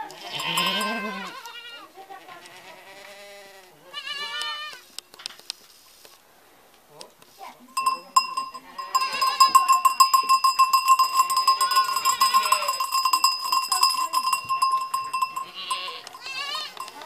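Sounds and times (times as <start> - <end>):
goats bleating: 0.0 - 4.8, 8.8 - 9.8, 11.2 - 13.0, 15.2 - 17.0
goat bell clanking: 0.2 - 1.7, 7.7 - 17.0.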